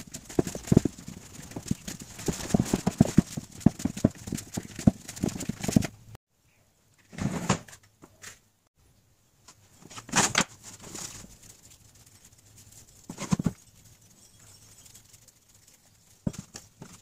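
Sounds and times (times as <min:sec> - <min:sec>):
soft rustling: 0:09.5 - 0:17.0.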